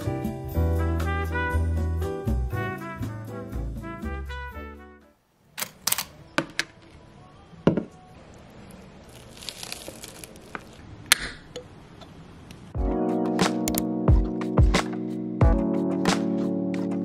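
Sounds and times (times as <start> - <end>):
brass music: 0.1 - 5.2.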